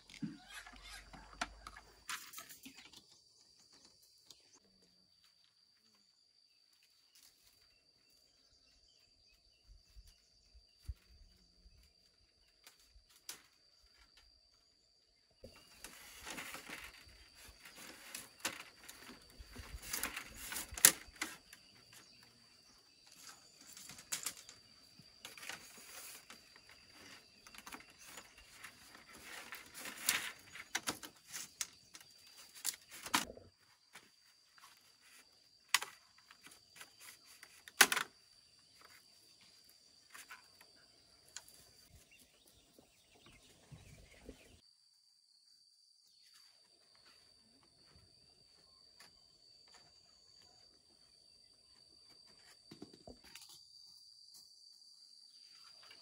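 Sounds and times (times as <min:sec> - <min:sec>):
bamboo slats clattering: 0:15.4 - 0:22.2, 0:23.0 - 0:39.0.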